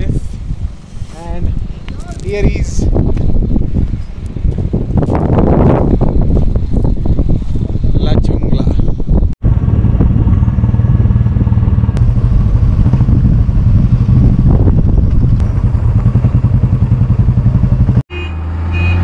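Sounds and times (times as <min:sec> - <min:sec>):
motorcycle engine running: 0:09.4 - 0:18.0.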